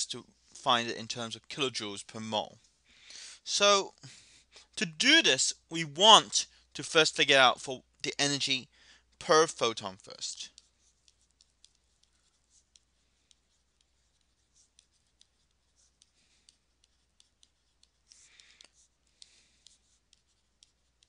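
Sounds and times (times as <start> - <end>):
stylus tapping on pen tablet: 10.5 - 21.0.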